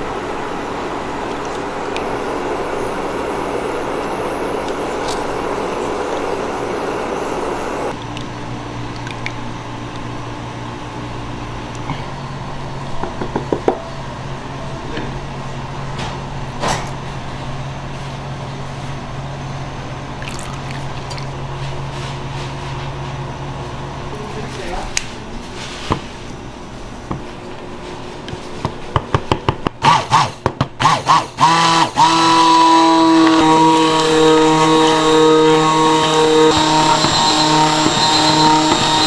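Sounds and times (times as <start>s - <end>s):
steady low hum: 0.0s - 29.8s.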